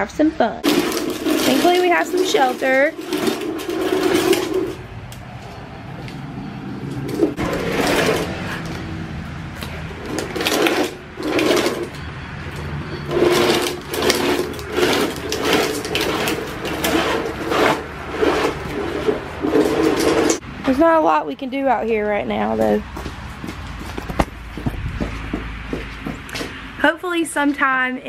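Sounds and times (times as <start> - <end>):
plastic wheels rattling on concrete: 0.6 - 4.8, 6.9 - 8.9, 9.6 - 20.4.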